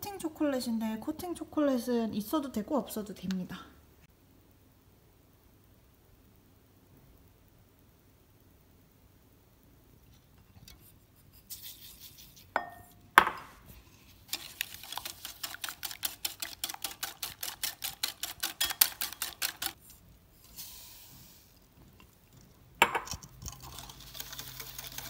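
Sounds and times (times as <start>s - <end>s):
knocks on ceramic bowl: 12.6s - 13.5s
whisk clinking against bowl: 14.3s - 19.8s.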